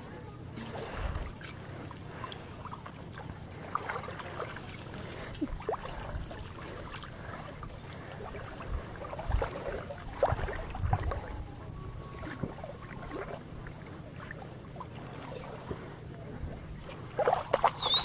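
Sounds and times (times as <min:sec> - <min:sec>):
small splashes: 0:00.0 - 0:18.0
water sloshing from wading: 0:00.0 - 0:18.0.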